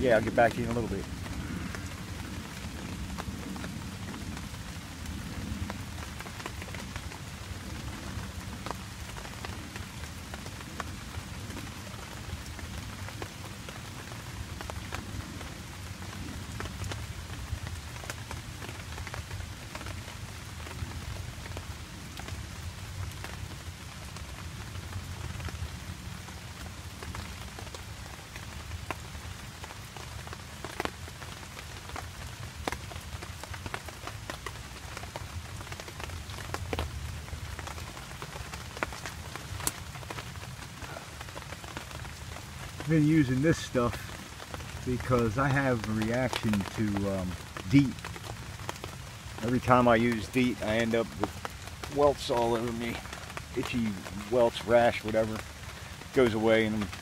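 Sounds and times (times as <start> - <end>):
close raindrops ticking: 0.0 - 57.0
steady rain falling: 0.0 - 57.0.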